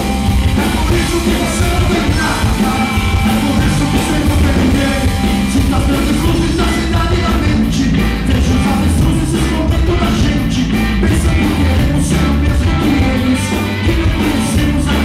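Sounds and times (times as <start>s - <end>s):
drum kit with cymbals: 0.0s - 15.0s
electric bass: 0.0s - 15.0s
electric guitar: 0.0s - 15.0s.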